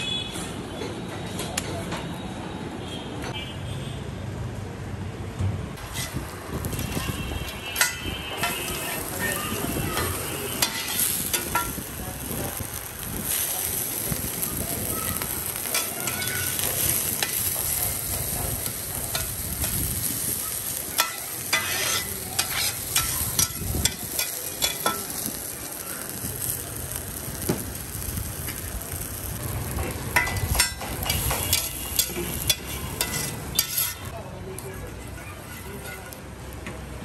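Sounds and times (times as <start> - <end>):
metal spatula scraping griddle: 5.8 - 7.0, 7.6 - 11.8, 15.4 - 25.3, 30.2 - 34.2
eggs sizzling in oil: 8.2 - 34.2.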